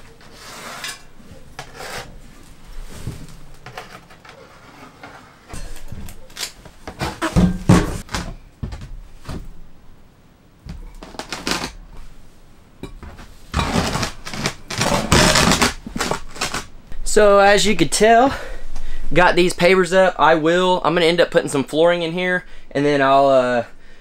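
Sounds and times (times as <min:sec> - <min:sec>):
gritty scrapes of pavers: 0:00.2 - 0:03.6, 0:13.3 - 0:16.7.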